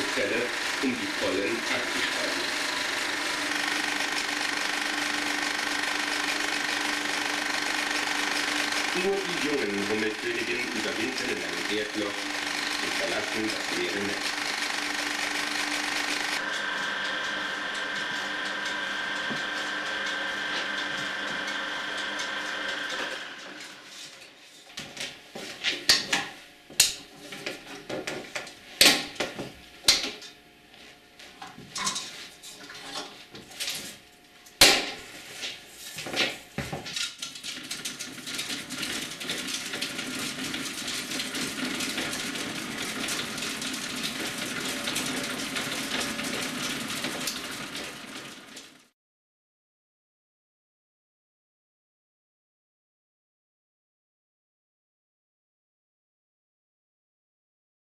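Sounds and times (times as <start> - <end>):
film projector whirring: 0.0 - 24.3, 32.6 - 48.9
film rewinding whir: 0.0 - 24.3, 35.4 - 48.9.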